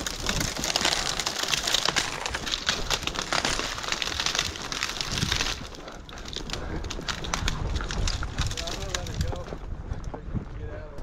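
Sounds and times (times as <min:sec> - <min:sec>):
dry branches crackling and snapping: 0:00.0 - 0:10.4.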